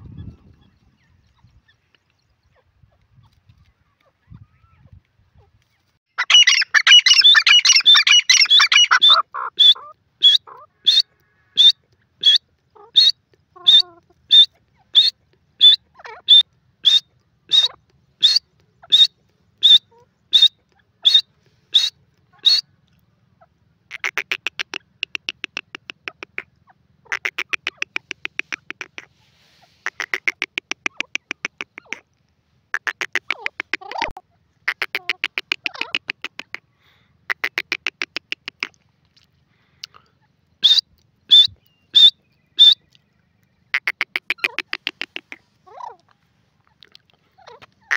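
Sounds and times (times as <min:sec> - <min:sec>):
bird calling harsh notes: 0:06.1 - 0:22.7, 0:23.9 - 0:32.0, 0:32.7 - 0:36.7, 0:40.6 - 0:46.1.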